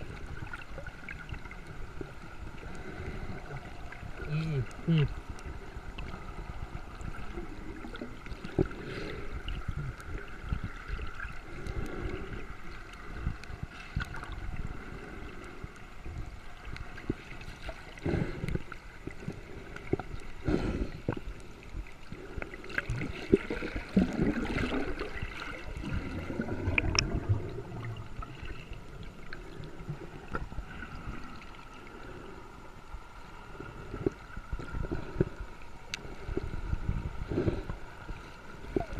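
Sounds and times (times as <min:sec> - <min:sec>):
water gurgling and sloshing: 0:00.0 - 0:38.9.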